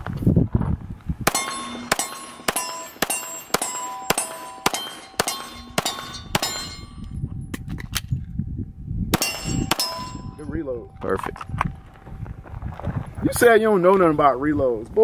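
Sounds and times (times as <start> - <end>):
handgun shots: 1.3 - 6.9, 9.2 - 10.1
steel target ringing: 1.3 - 7.2, 9.2 - 10.8.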